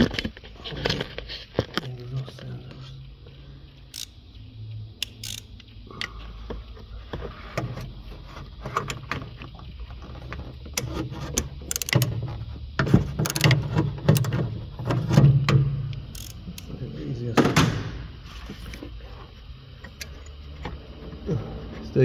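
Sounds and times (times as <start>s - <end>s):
ratchet clicks: 3.7s - 6.8s, 10.6s - 12.1s, 13.2s - 14.4s, 15.9s - 16.7s.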